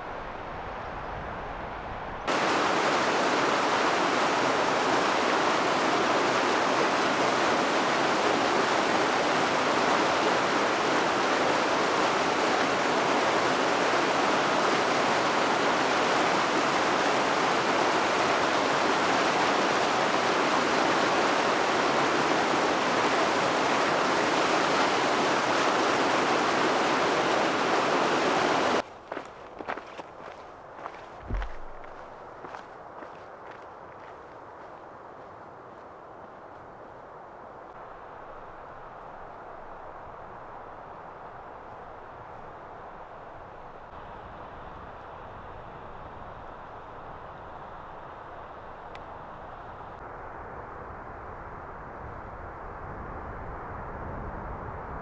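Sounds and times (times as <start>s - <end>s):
waterfall rushing: 2.3s - 28.8s.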